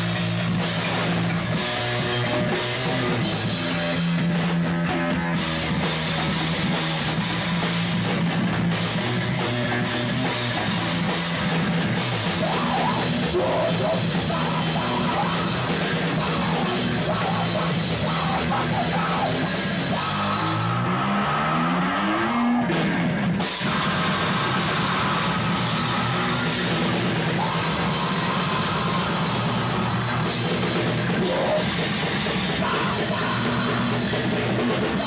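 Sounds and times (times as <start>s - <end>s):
live rock band playing: 0.0s - 35.0s.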